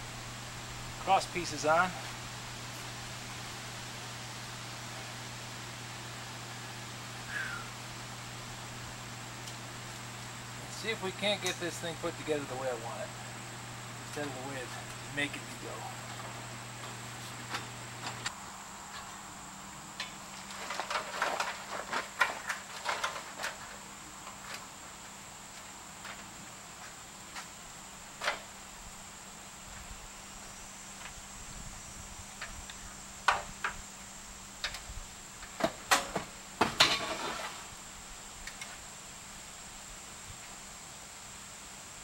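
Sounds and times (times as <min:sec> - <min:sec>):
high insect drone: 0:00.0 - 0:42.0
steel tubes knocking and rattling: 0:35.5 - 0:37.6.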